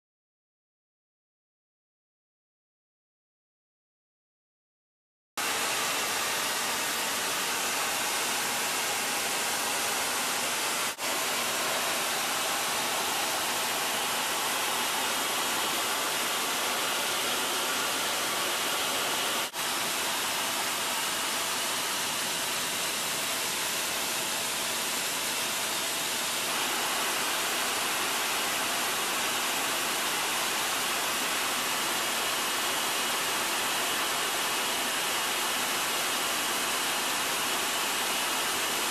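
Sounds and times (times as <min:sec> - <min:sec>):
jet cockpit air and engine roar: 0:05.4 - 0:33.1.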